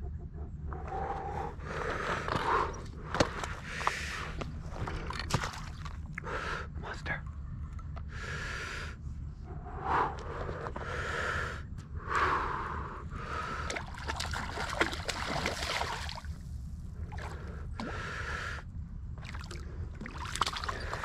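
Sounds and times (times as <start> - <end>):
person breathing heavily: 0.3 - 5.0, 6.2 - 7.0, 8.0 - 14.2, 17.0 - 18.8
water splashing: 4.6 - 6.0, 13.6 - 16.3, 19.2 - 21.0.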